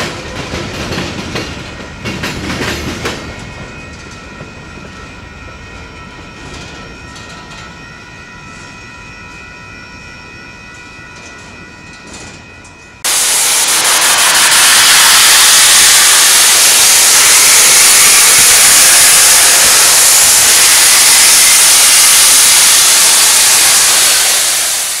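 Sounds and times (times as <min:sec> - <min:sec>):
faint train noise: 0:00.0 - 0:25.0
steady high tones: 0:03.8 - 0:25.0
steam locomotive venting steam: 0:13.0 - 0:25.0.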